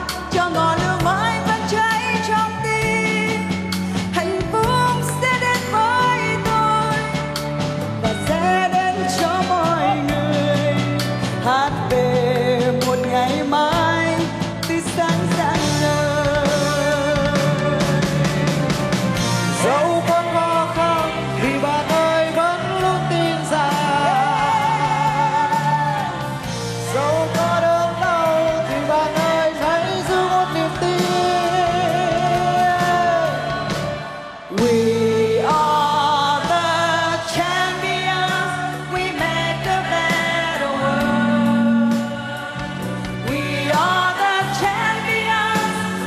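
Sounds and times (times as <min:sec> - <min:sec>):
full band playing: 0:00.0 - 0:46.0
woman singing pop song: 0:00.0 - 0:46.0.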